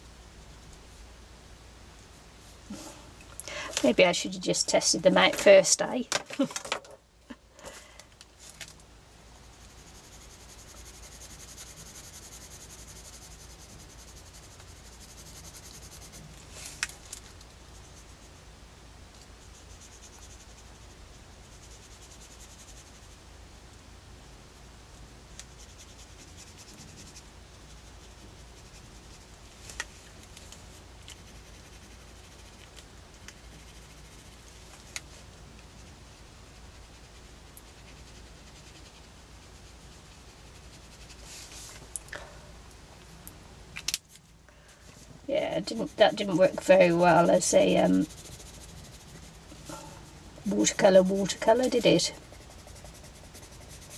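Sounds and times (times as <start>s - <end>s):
low steady hum: 0.0s - 53.9s
pen and pencil scratching paper: 9.4s - 16.4s, 19.4s - 23.1s, 25.4s - 29.4s, 31.1s - 34.9s, 45.4s - 53.9s.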